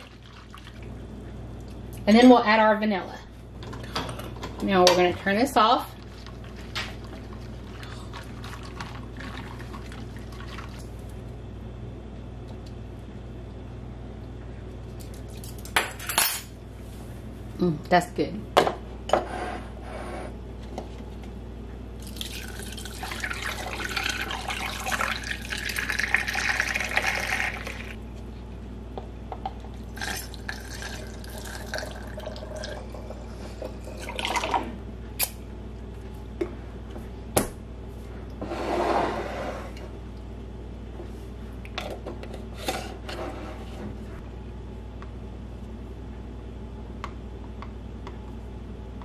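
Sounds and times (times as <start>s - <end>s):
liquid pouring through a funnel: 22.0s - 28.0s, 29.8s - 34.6s.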